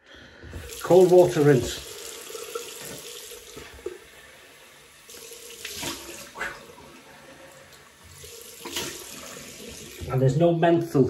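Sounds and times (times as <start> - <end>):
tap running into sink: 1.7 - 4.0, 5.1 - 6.6, 8.0 - 10.2
water splashing: 5.0 - 10.2.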